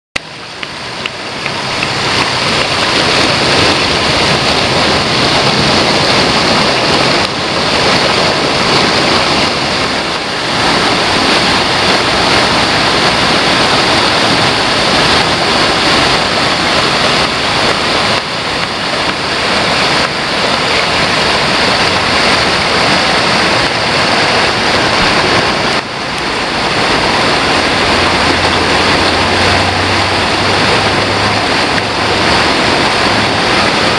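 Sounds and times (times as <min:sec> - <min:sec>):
river water rushing over boulders: 0:00.2 - 0:33.9.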